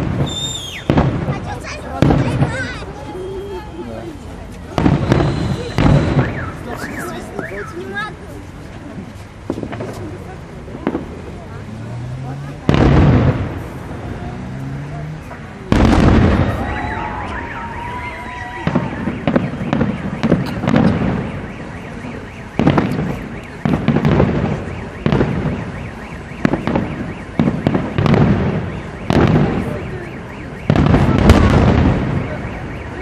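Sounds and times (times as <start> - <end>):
fireworks bursting with bangs: 0.0 - 33.0.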